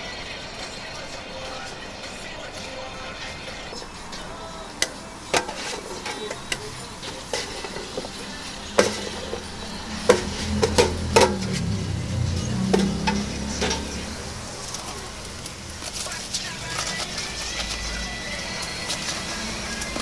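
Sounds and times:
low hum: 3.8s - 16.0s.

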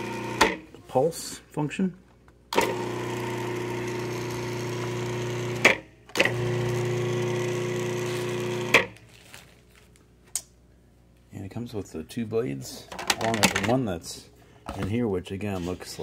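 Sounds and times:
food processor motor humming: 0.0s - 0.6s, 2.6s - 8.8s.

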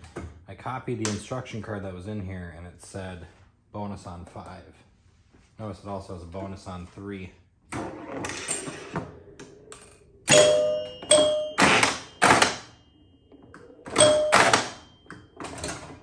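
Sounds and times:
pinball scoring chimes: 7.7s - 16.0s
pinball solenoid thunks and clicks: 7.7s - 16.0s.

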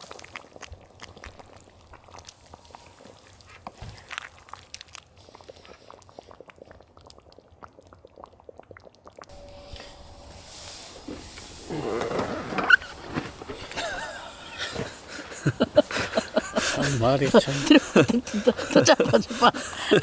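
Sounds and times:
sauce bubbling and popping: 0.0s - 9.3s.

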